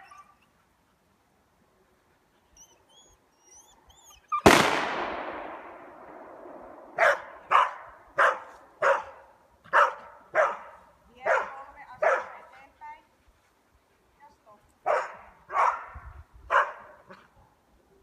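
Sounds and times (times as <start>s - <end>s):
gunshot: 4.4s - 7.4s
dog barking: 7.0s - 12.4s, 14.8s - 17.2s.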